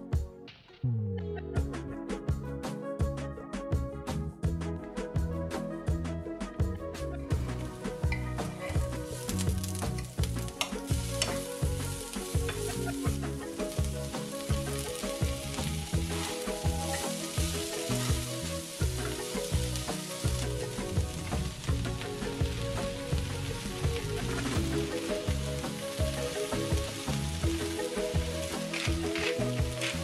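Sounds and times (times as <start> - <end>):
background music with steady beat: 0.0 - 30.0
vegetables sizzling in frying pan: 8.5 - 30.0.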